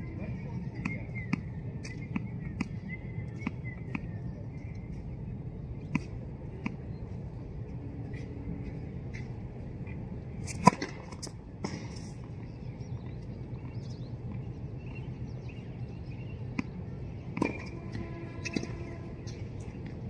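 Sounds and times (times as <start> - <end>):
tennis ball bouncing ping: 0.8 - 2.8, 16.5 - 19.4
racket hitting tennis ball: 10.4 - 12.2.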